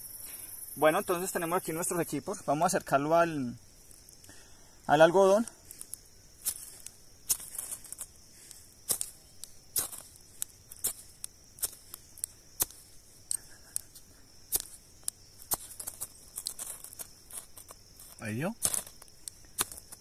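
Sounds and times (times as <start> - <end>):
striker scraping flint rod: 5.6 - 20.0.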